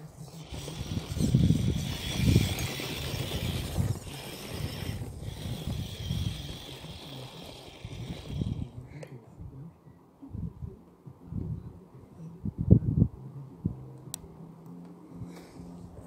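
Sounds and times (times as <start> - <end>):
toy car motor whining: 0.0 - 8.8
low rumbles: 0.0 - 16.0.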